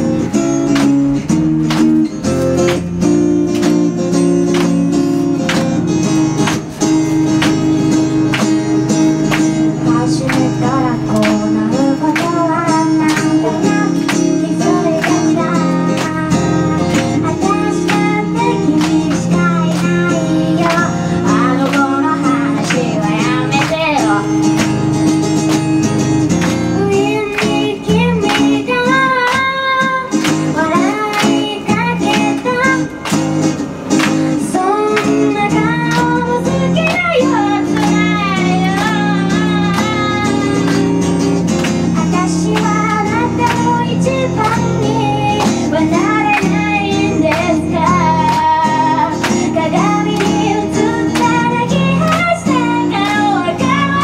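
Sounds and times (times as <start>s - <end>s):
strummed acoustic guitar: 0.0s - 54.0s
handclaps: 0.2s - 54.0s
woman singing: 9.3s - 24.7s, 26.6s - 33.1s, 34.3s - 41.2s, 41.9s - 54.0s.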